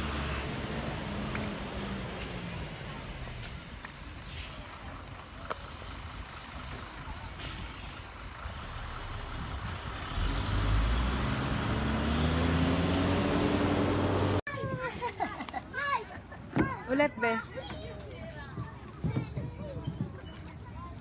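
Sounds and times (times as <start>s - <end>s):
truck engine running: 0.0s - 14.4s
street traffic: 0.0s - 21.0s.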